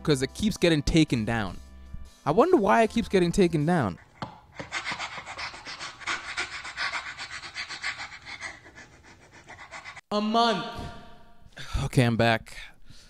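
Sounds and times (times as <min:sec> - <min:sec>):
rapid panting: 0:03.6 - 0:10.1.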